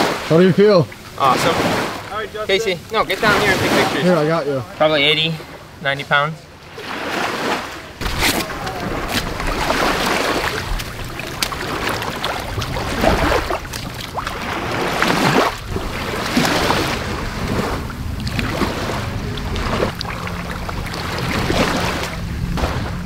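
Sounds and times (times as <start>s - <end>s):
small waves washing on ramp: 0.0s - 23.0s
wind buffeting microphone: 7.9s - 23.0s.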